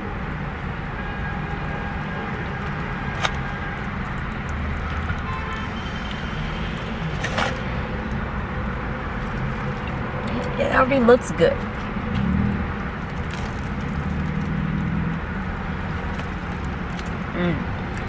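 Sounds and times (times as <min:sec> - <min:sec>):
foil wrapper crinkling: 0:13.0 - 0:14.7.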